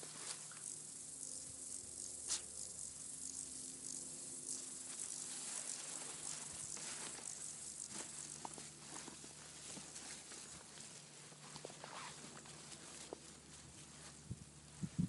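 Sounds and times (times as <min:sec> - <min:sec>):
steady high hiss: 0:00.0 - 0:15.0
dog paws rustling dry grass: 0:04.8 - 0:15.0.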